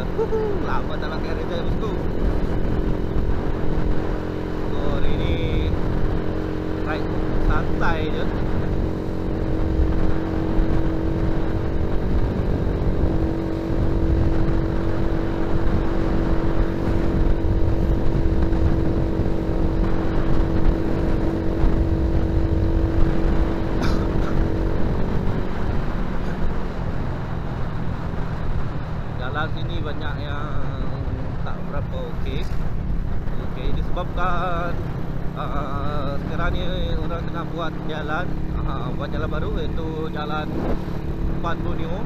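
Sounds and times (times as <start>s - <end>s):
motor scooter engine: 0.0s - 27.8s
road noise: 0.0s - 42.0s
wind rumble on microphone: 0.0s - 42.0s.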